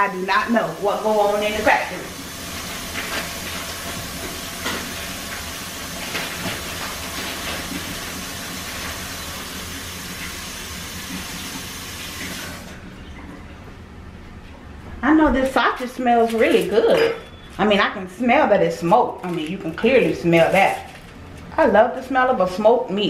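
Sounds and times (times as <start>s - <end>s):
kitchen tap running: 0.0s - 13.3s.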